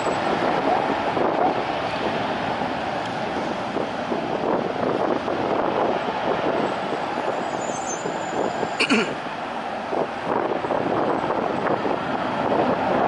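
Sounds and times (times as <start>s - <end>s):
motorcycles passing: 0.0s - 9.9s.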